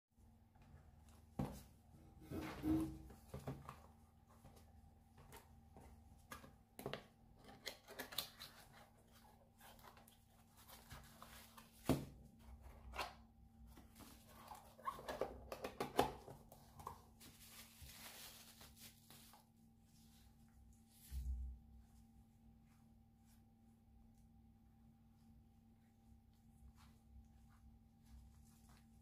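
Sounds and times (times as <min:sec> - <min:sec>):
bubble-wrap bag crinkling: 0:17.2 - 0:19.3.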